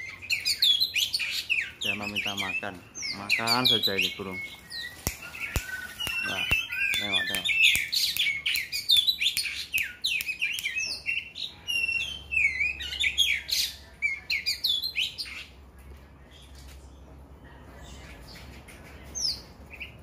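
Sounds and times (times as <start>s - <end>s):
bird singing whistles and chirps: 0.0s - 15.4s.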